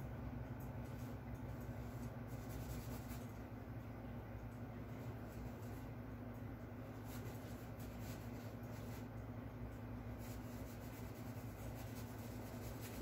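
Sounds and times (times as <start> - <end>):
low steady hum: 0.0 - 13.0
paintbrush strokes on canvas: 0.8 - 3.5, 4.9 - 6.0, 6.8 - 9.2, 10.0 - 13.0.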